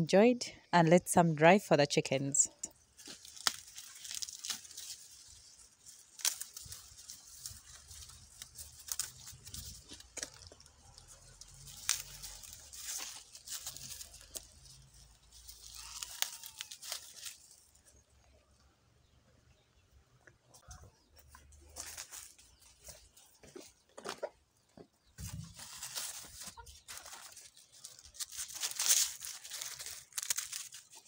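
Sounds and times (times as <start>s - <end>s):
dry maize husks tearing: 2.7s - 18.2s, 21.2s - 23.8s, 25.2s - 31.0s.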